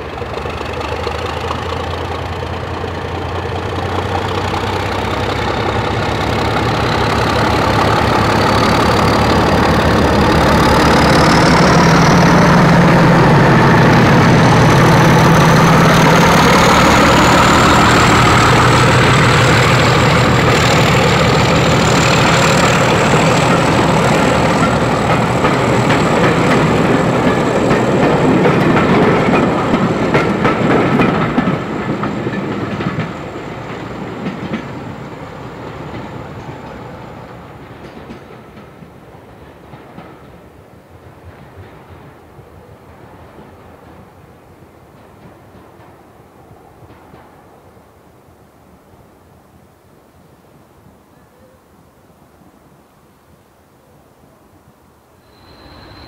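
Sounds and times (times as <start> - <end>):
diesel train engine whining: 0.0 - 40.6, 55.2 - 56.0.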